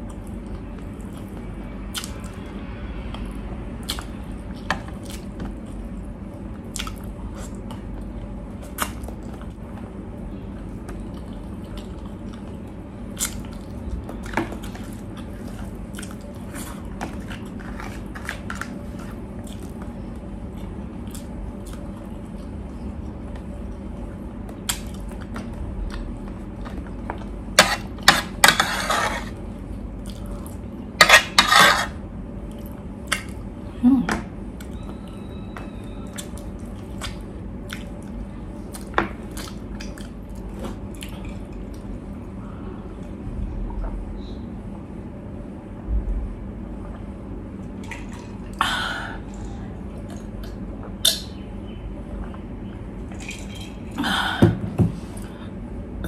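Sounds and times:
chewing and lip smacks: 6.7 - 8.1, 36.1 - 41.9.

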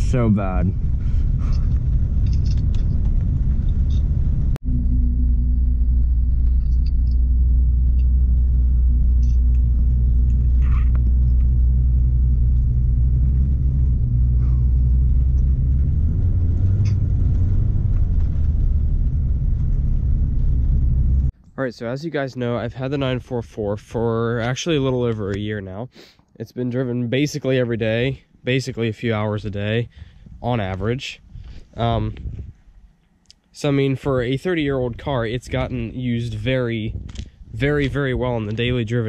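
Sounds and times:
car engine drone from inside cabin: 0.0 - 21.3.

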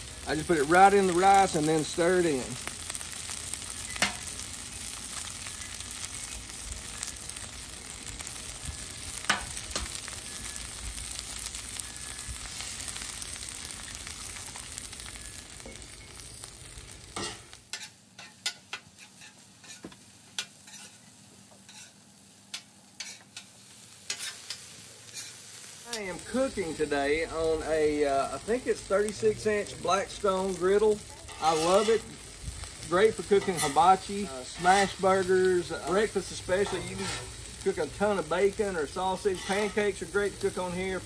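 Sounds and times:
rice sizzling on griddle: 0.0 - 41.0
metal spatula scraping griddle: 17.1 - 23.5, 24.1 - 25.4, 31.2 - 40.5.

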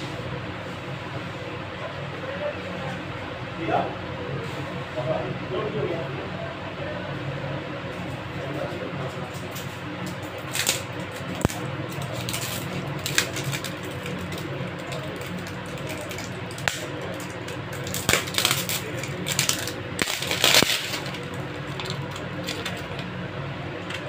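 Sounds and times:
steady low hum: 0.0 - 24.0
plastic wrapping crinkling: 10.4 - 23.1.

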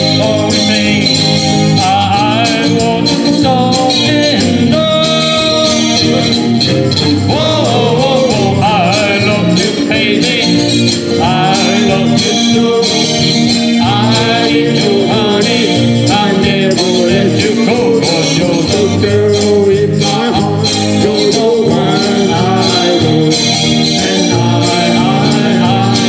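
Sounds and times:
live band playing pop song: 0.0 - 26.0.

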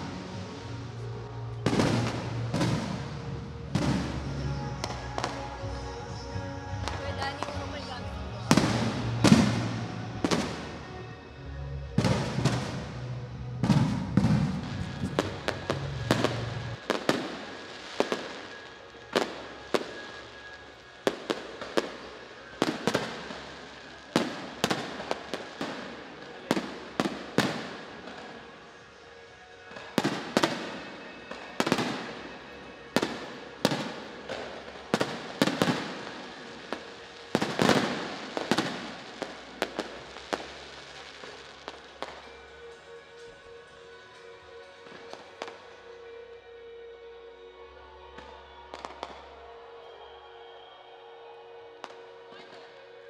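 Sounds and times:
fireworks crackling: 0.0 - 46.0, 48.1 - 50.1.

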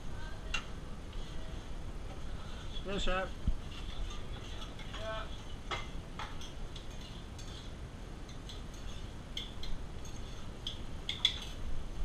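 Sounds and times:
steady low background hum: 0.0 - 12.0
metallic clinks of utensils and pans: 8.3 - 11.6.

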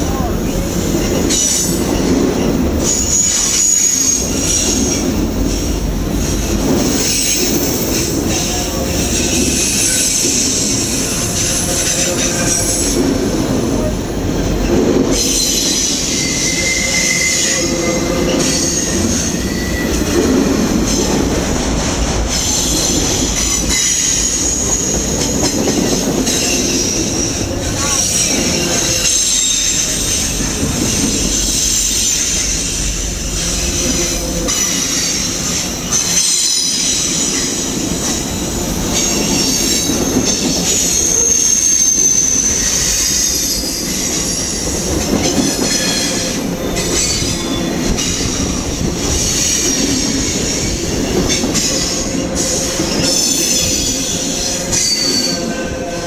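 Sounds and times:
train wheels rumbling on rails: 0.0 - 56.0
high wheel squeal: 2.8 - 5.1, 15.1 - 21.0, 22.3 - 56.0.

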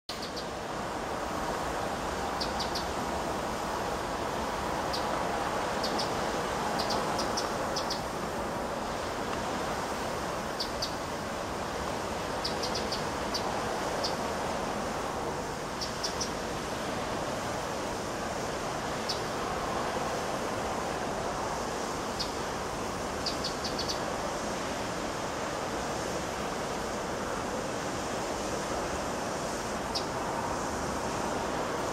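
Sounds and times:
sea rushing: 0.1 - 31.9
high bird chirps: 6.8 - 8.0, 12.4 - 14.2.

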